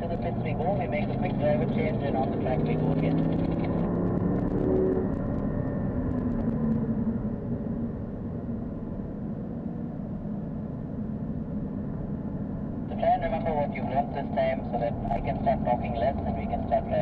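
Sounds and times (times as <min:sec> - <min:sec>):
car engine running: 0:00.0 - 0:07.0
road noise rumble: 0:00.0 - 0:17.0.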